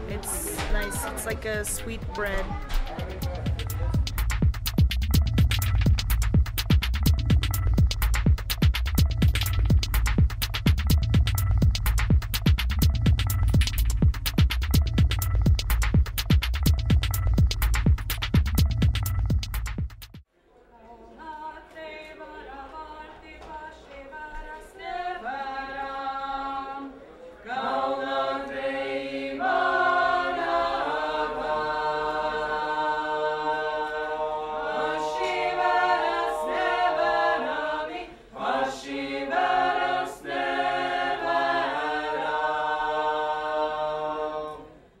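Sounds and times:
mixed choir singing a cappella: 0.0s - 2.0s, 21.1s - 45.0s.

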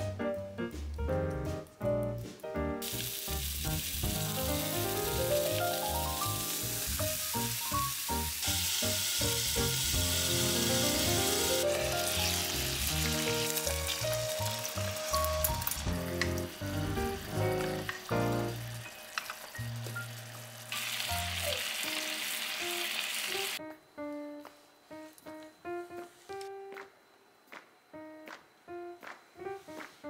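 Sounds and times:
piano music: 0.0s - 30.0s
food sizzling in a frying pan: 2.8s - 23.6s.

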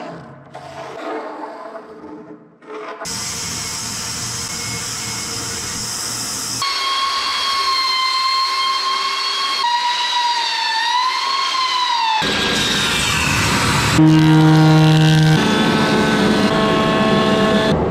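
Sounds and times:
belt sander whine: 3.1s - 17.9s
bandsaw cutting wood: 5.5s - 16.6s.

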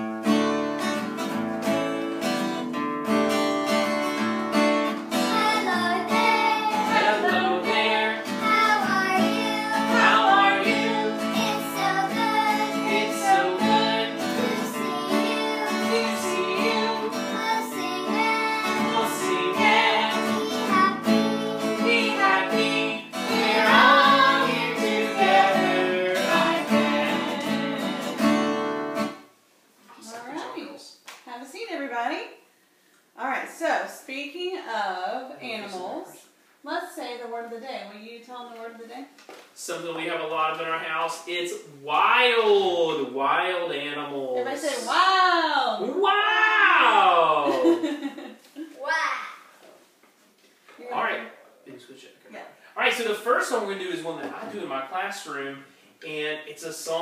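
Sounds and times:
strummed acoustic guitar: 0.0s - 29.3s
children singing: 5.2s - 28.4s.

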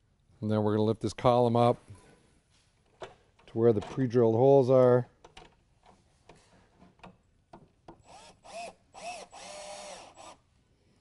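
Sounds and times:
cordless drill driving screws: 8.0s - 10.4s.

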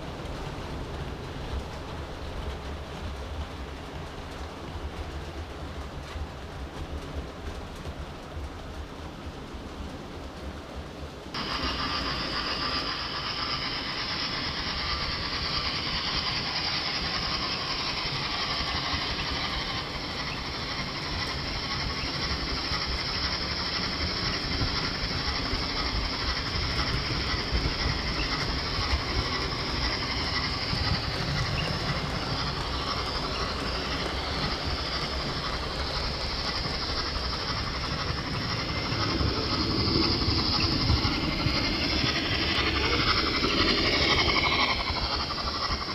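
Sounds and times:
model train wheels rattling on rails: 11.0s - 45.9s.

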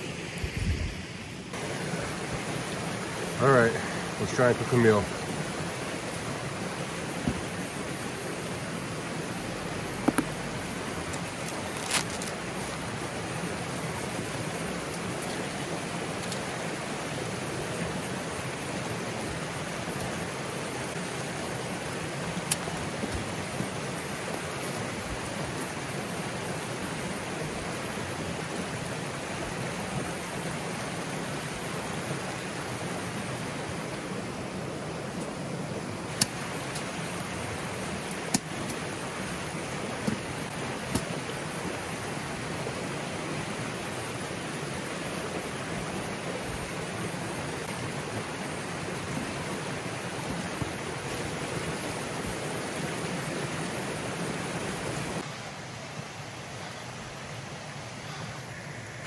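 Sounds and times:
pouring rain: 0.0s - 59.0s
running water: 0.0s - 59.0s.

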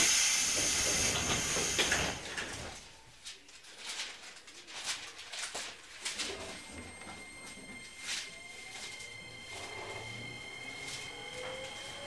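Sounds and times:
loud pneumatic air hiss: 0.0s - 2.1s.

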